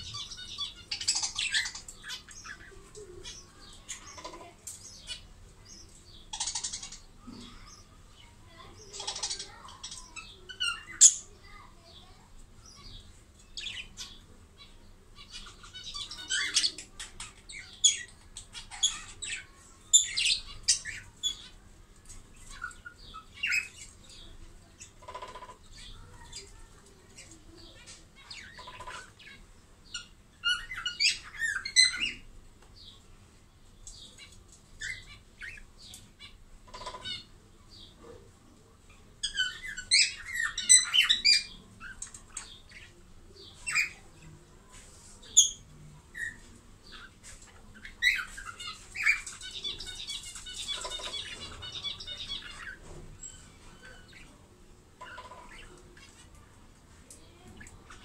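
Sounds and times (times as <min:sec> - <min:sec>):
budgerigars chirping and chattering: 0:00.0 - 0:33.1, 0:33.7 - 0:58.0
bird squawks: 0:47.8 - 0:54.4.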